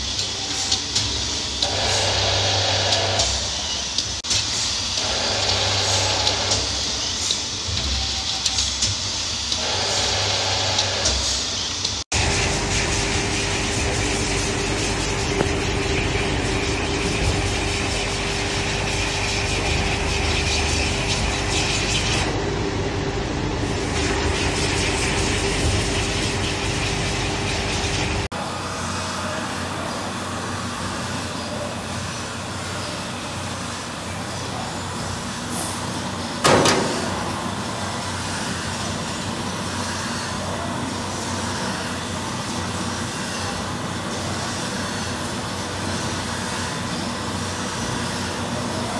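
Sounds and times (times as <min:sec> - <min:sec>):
steady hum: 0:00.0 - 0:48.9.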